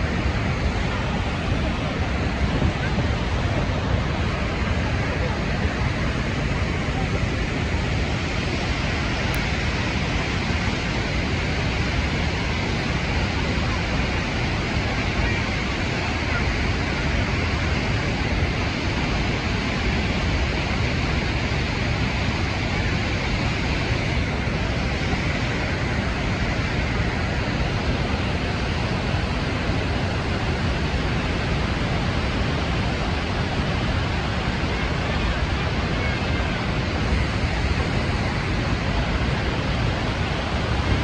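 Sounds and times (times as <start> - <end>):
waterfall roar: 0.0 - 41.0.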